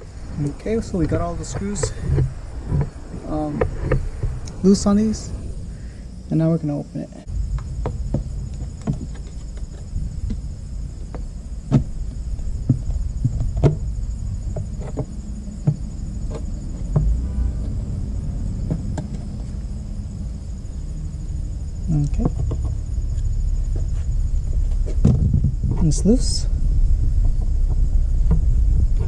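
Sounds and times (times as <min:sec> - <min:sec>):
faint insect chirping: 0:00.0 - 0:29.0
steady low rumble: 0:00.0 - 0:29.0.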